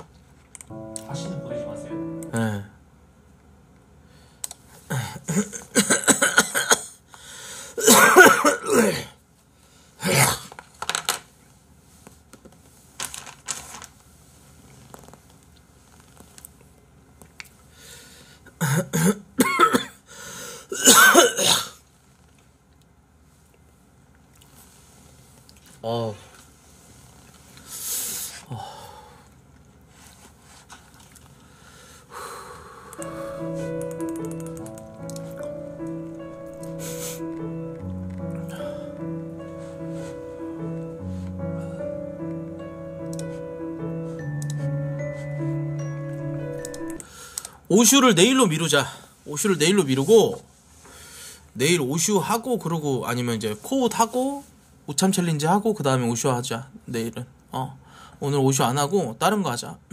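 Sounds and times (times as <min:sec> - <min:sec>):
soft background music: 0:00.7 - 0:02.7, 0:33.0 - 0:47.1
man clearing his throat: 0:04.9 - 0:07.0, 0:07.8 - 0:09.2, 0:18.6 - 0:20.0, 0:20.7 - 0:21.8
man coughing: 0:04.9 - 0:07.0, 0:07.8 - 0:09.2, 0:18.6 - 0:20.0, 0:20.7 - 0:21.8
man sniffing and breathing hard: 0:36.7 - 0:37.4.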